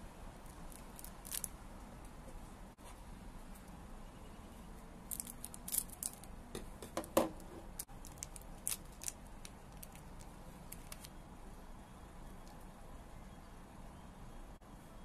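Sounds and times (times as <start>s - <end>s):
plastic wrapper crinkling: 0.5s - 1.5s, 5.1s - 6.3s, 7.8s - 11.2s.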